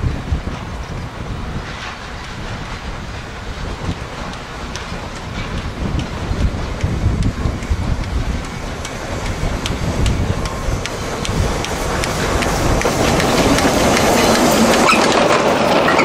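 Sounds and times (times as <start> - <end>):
steam locomotive running: 0.0 - 16.0
wind buffeting microphone: 0.0 - 16.0
sharp clicks from wheels and track: 0.1 - 16.0.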